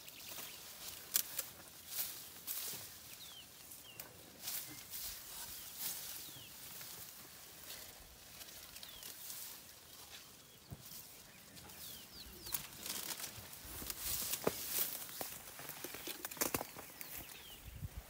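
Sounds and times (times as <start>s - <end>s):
leafy branches rustling: 0.0s - 18.0s
twigs snapping: 0.8s - 2.0s, 12.4s - 17.2s.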